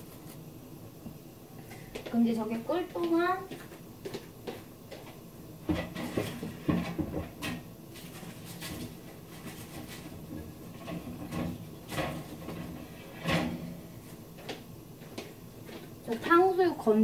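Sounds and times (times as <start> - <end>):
kitchen things knocking and clunking: 5.6 - 13.8.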